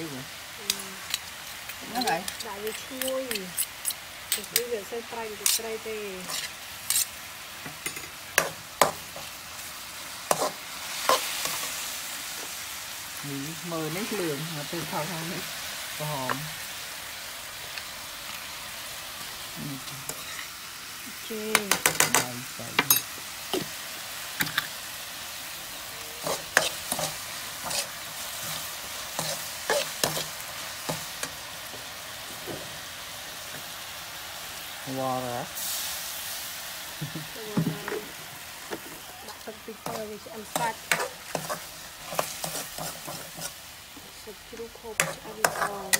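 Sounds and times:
meat sizzling in a wok: 0.0s - 45.9s
metal ladle scraping a pan: 45.0s - 45.9s.

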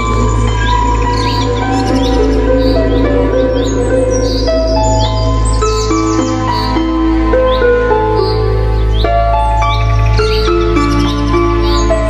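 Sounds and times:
slow soft melody: 0.0s - 12.0s
steady low drone: 0.0s - 12.0s.

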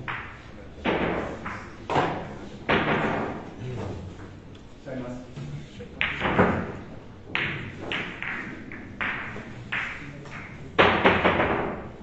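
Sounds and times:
sharp knocks with echoes: 0.0s - 3.5s, 6.0s - 11.9s.

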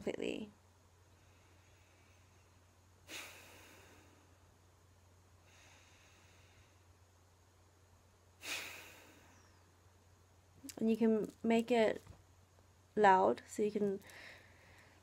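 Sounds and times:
woman breathing deeply: 1.0s - 4.5s, 5.4s - 7.0s, 8.4s - 9.7s, 14.0s - 15.0s.

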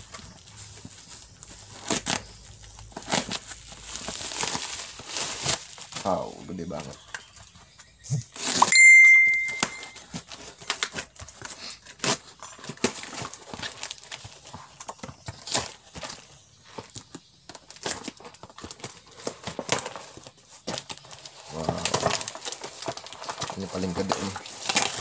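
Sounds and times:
plastic wrapping crinkling: 0.0s - 7.7s, 8.3s - 25.0s
high ringing tone: 8.6s - 10.1s.

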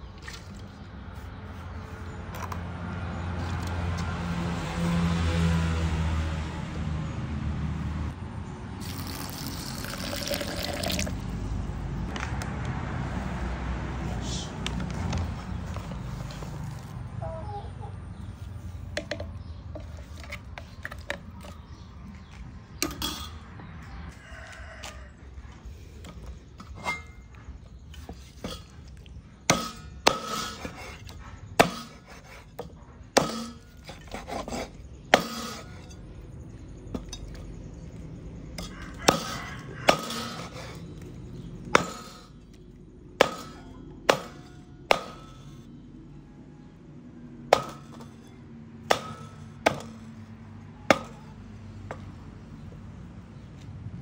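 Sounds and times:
cleaver chopping on wooden block: 29.5s - 30.9s, 31.6s - 32.4s, 33.2s - 35.6s, 41.8s - 42.3s, 43.2s - 45.4s, 48.9s - 50.1s, 50.9s - 51.3s.

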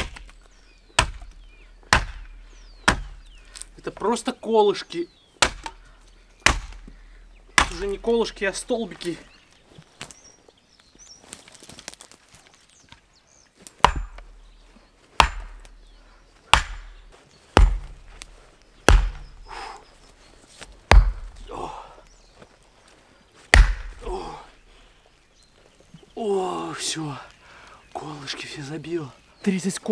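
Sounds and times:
hammer striking wooden stake: 0.0s - 0.4s, 1.0s - 3.7s, 5.4s - 5.8s, 6.4s - 6.9s, 7.6s - 8.0s, 13.8s - 14.4s, 15.2s - 15.8s, 16.5s - 17.0s, 17.6s - 19.4s, 20.9s - 21.5s, 23.5s - 24.1s.

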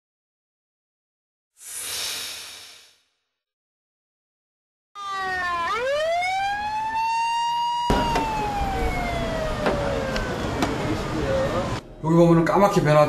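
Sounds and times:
ambulance siren wailing: 5.0s - 11.8s
street traffic noise: 7.9s - 12.0s.

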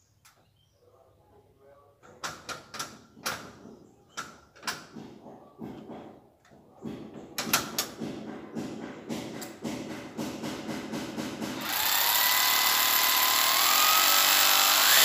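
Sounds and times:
metal grille door clicking and knocking: 2.0s - 11.6s.

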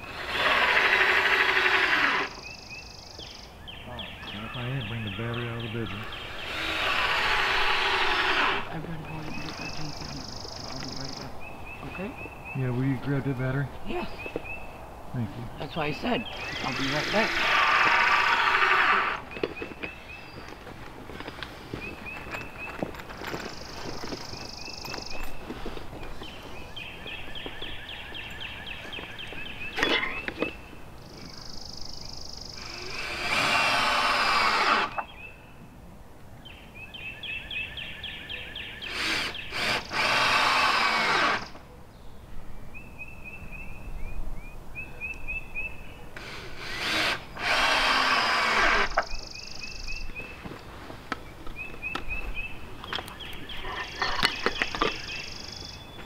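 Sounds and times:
cordless drill driving screws: 6.3s - 8.6s, 16.6s - 19.2s, 32.6s - 35.0s, 38.9s - 41.6s, 46.2s - 49.1s.

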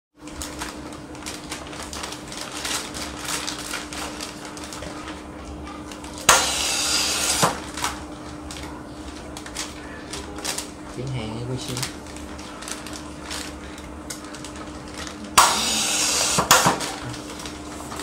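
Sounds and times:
sealing machine hum: 0.2s - 18.0s
snack bags rustling: 0.2s - 18.0s
nitrogen jet hiss: 15.4s - 16.7s.

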